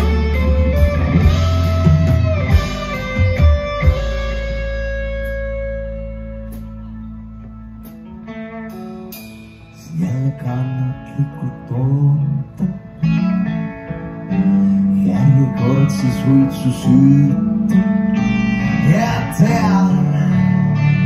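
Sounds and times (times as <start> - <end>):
electric guitar picked notes: 0.0 - 21.0
man singing: 9.8 - 12.8, 14.9 - 17.9, 18.7 - 21.0.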